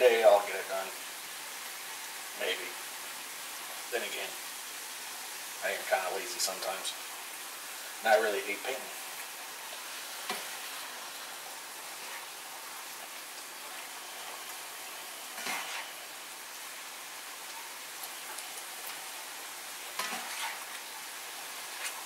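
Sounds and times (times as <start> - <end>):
beef sizzling in a skillet: 0.0 - 22.0
spatula scraping a pan: 15.2 - 16.2, 19.9 - 20.8.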